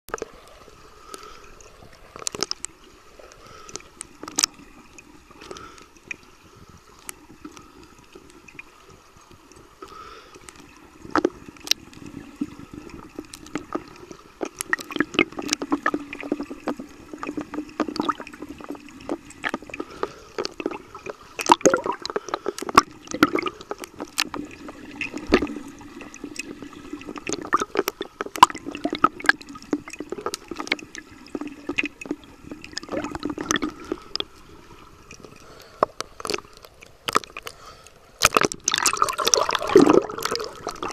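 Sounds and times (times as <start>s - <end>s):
swimmer churning water: 0.1s - 40.9s
sharp clicks and crackles: 2.2s - 4.6s, 13.1s - 25.6s, 35.1s - 38.9s
pool water splashing: 9.5s - 40.9s.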